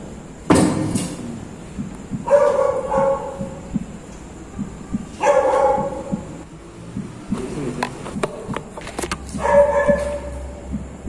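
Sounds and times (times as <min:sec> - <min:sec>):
dog barking: 0:02.2 - 0:03.7, 0:05.2 - 0:06.3, 0:09.3 - 0:10.6.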